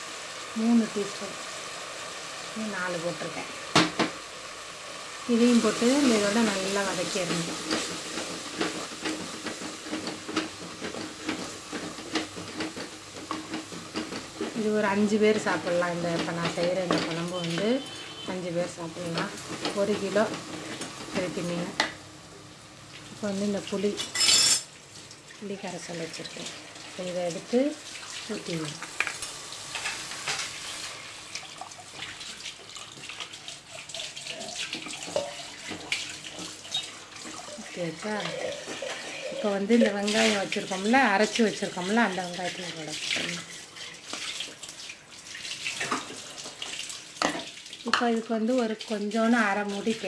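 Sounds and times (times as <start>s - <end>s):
frying hiss: 0.0s - 50.0s
liquid pouring into a pot: 30.7s - 40.6s
spatula scraping a clay pot: 38.2s - 39.5s.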